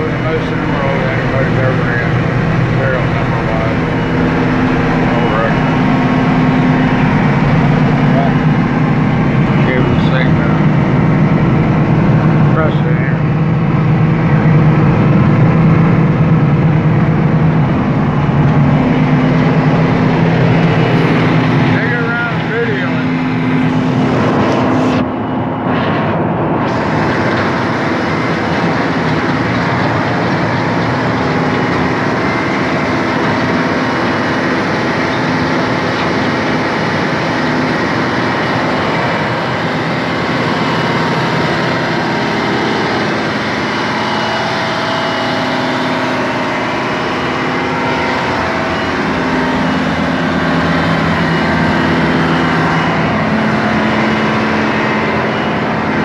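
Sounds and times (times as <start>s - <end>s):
auger drill engine droning: 0.0s - 56.0s.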